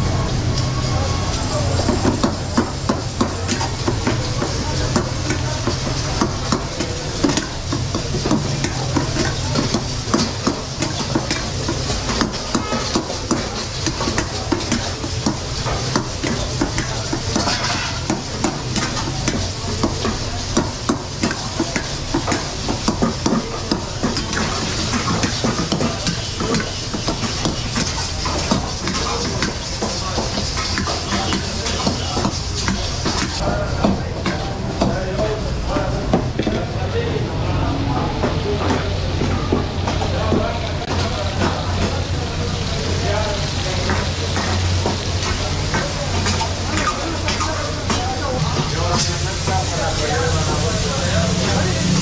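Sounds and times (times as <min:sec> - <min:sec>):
meat sizzling: 0:00.0 - 0:36.5, 0:38.0 - 0:52.0
metal ladle scraping a wok: 0:07.0 - 0:19.4.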